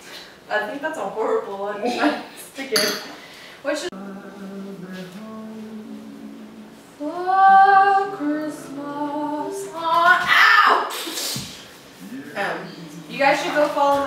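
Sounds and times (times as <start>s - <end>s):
woman singing long held notes: 3.9s - 10.9s, 12.0s - 14.0s.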